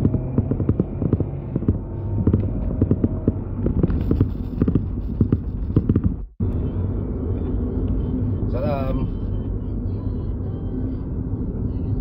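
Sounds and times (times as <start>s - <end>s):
irregular clicks and knocks: 0.0s - 6.4s
car cabin drone: 0.0s - 12.0s.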